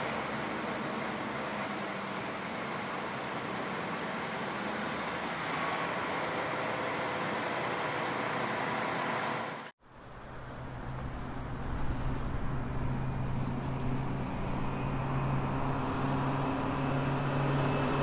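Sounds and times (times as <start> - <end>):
excavator diesel engine running: 0.1 - 18.0
low engine hum: 4.3 - 18.0.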